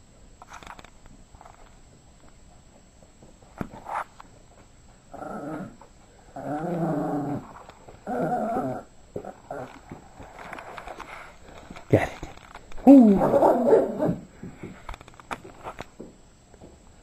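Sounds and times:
dog growling: 5.1s - 10.0s, 12.8s - 14.3s.

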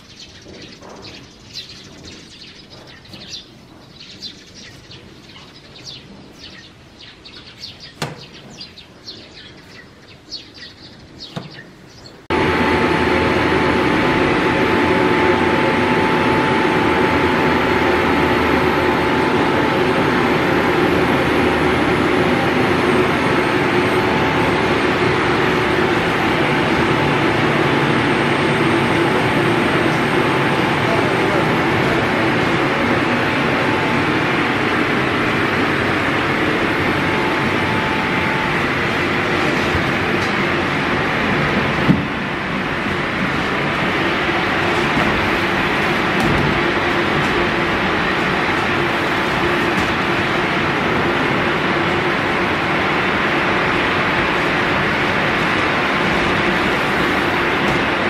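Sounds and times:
birds chirping: 0.0s - 39.4s
loud mechanical drone: 12.3s - 58.0s.

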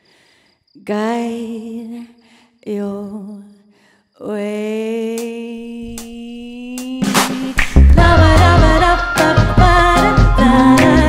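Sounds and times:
woman vocalising wordlessly: 4.3s - 7.2s.

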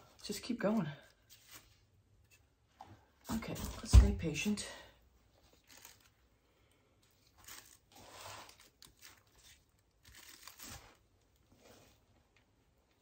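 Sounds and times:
faint rustles and brushes: 10.8s - 12.3s.

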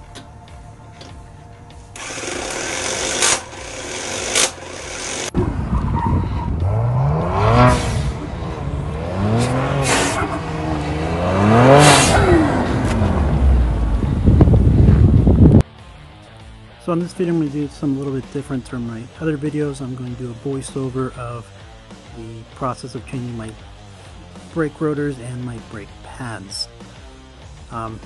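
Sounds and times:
rushing noise: 3.1s - 15.6s
car engine revving hard: 6.4s - 14.7s.

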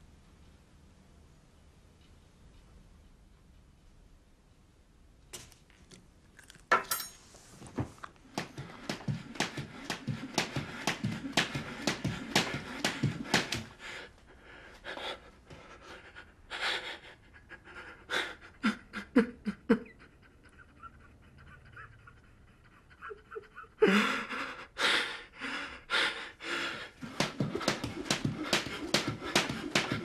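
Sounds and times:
person panting heavily: 8.4s - 19.3s, 20.1s - 30.0s.

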